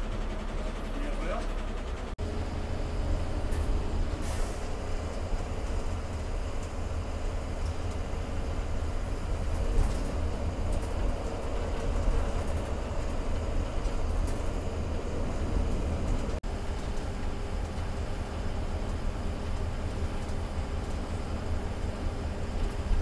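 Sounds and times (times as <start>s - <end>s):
bus engine and tyres rumbling: 0.0s - 23.0s
light rattles and ticks: 5.0s - 23.0s.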